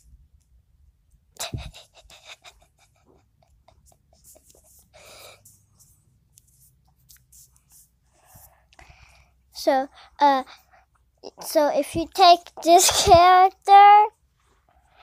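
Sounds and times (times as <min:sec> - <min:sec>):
person breathing: 0:04.7 - 0:06.0, 0:08.0 - 0:10.9.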